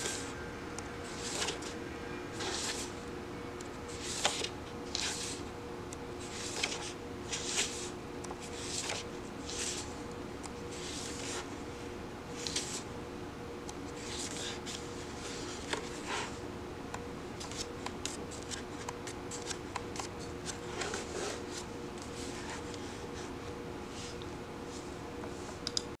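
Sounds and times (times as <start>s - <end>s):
book pages turning: 1.0s - 2.9s, 3.9s - 5.5s, 6.2s - 10.0s, 10.7s - 11.5s, 12.4s - 12.9s, 14.0s - 16.4s, 17.4s - 23.0s.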